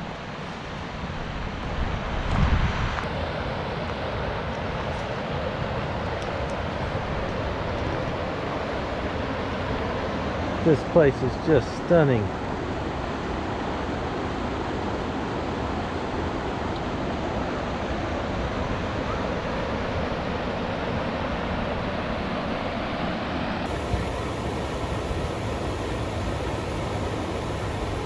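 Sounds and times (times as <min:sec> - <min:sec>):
river rapids rushing: 0:14.3 - 0:28.0.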